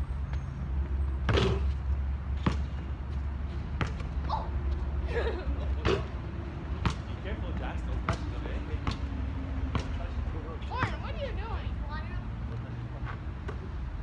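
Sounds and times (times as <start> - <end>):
ball bouncing on hard court: 2.4 - 2.8, 3.8 - 4.2, 6.8 - 7.1, 9.7 - 10.0.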